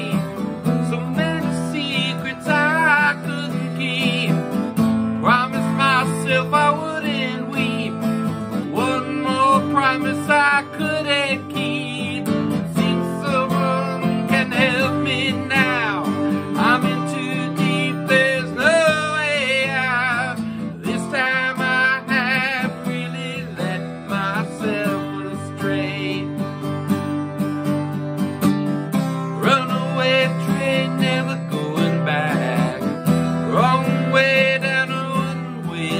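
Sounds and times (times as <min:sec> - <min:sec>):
man singing: 0:00.0 - 0:26.9, 0:29.2 - 0:35.9
strummed acoustic guitar: 0:00.0 - 0:35.9.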